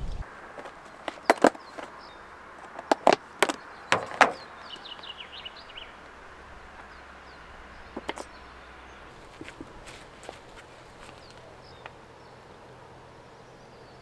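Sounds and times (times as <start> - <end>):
bird chirping: 0.0 - 14.0
objects clicking and knocking: 2.7 - 4.4.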